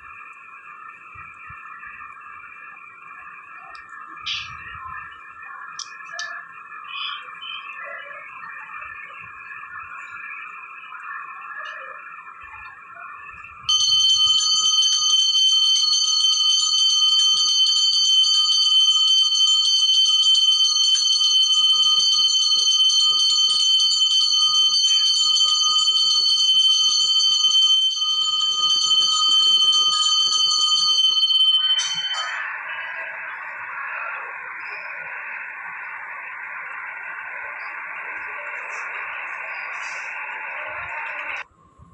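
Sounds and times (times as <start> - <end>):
temple bell ringing rapidly: 13.7 - 32.5.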